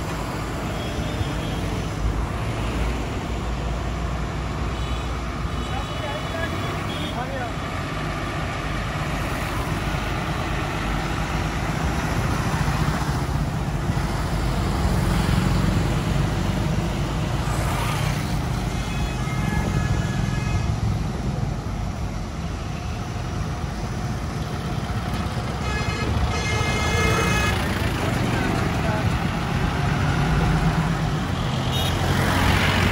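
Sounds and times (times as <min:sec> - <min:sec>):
trucks rumbling past: 0:00.0 - 0:32.9
truck horn: 0:17.9 - 0:20.8, 0:25.5 - 0:28.2, 0:31.4 - 0:32.4.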